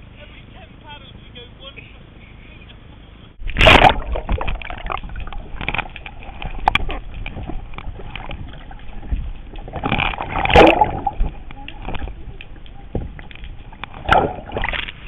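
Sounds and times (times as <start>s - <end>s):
water slapping against kayak: 3.4s - 15.0s.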